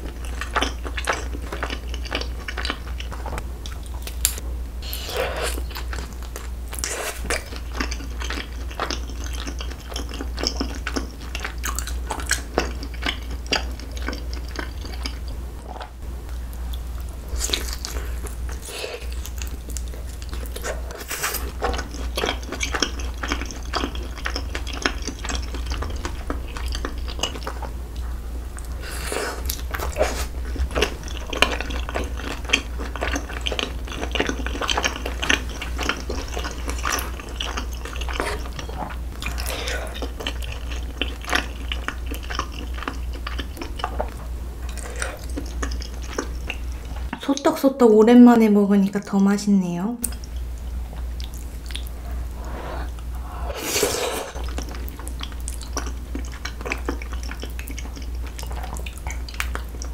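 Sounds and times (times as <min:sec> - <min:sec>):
close chewing: 0:00.0 - 0:47.2, 0:50.0 - 0:59.9
steady low hum: 0:00.0 - 0:59.9.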